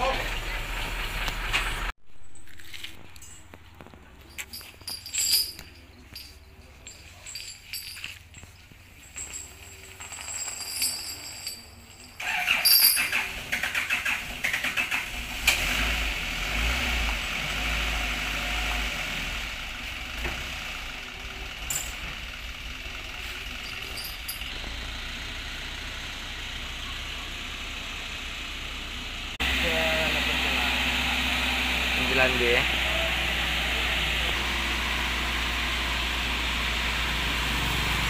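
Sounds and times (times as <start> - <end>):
truck diesel engine rumbling: 0.0 - 38.0.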